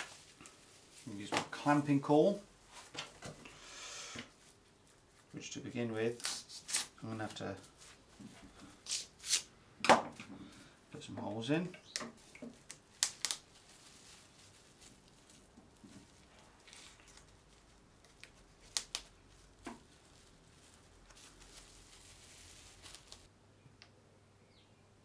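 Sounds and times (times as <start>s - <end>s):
plastic wrap crinkling: 0.0s - 2.9s, 11.8s - 23.3s.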